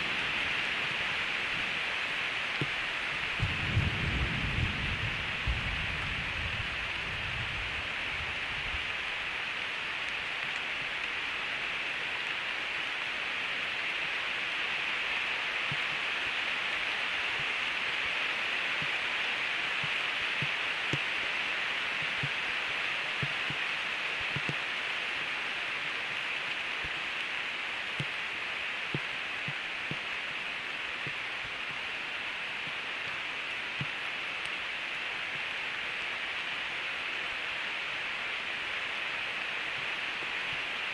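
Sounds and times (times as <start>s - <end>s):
heavy rain falling: 0.0s - 40.9s.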